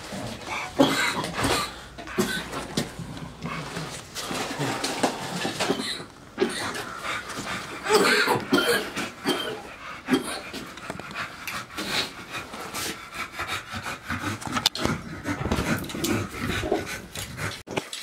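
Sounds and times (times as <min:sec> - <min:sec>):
dog panting: 0:06.4 - 0:17.6.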